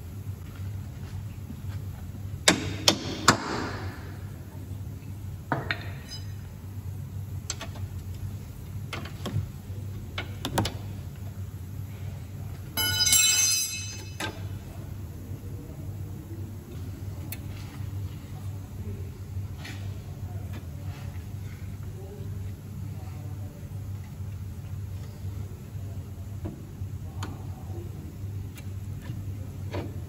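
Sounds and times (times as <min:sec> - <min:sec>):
steady low hum: 0:00.0 - 0:30.0
metal tools clinking and knocking: 0:12.8 - 0:14.3
ringing metallic rattle: 0:12.8 - 0:14.3.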